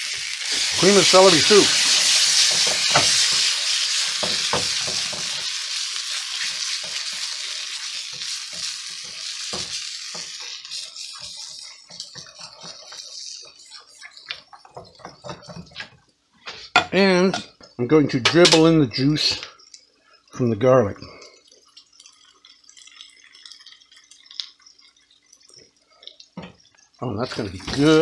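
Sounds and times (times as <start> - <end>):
vegetables sizzling in a saucepan: 0.0 - 17.6, 21.1 - 28.0
spatula scraping a metal pan: 8.2 - 15.9.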